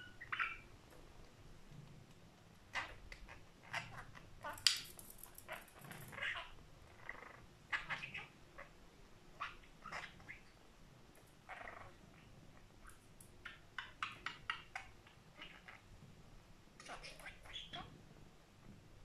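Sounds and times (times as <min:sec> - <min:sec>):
budgerigar chirps and chatter: 0:00.0 - 0:00.7, 0:02.7 - 0:08.7, 0:09.4 - 0:10.6, 0:13.4 - 0:15.9, 0:16.8 - 0:17.9.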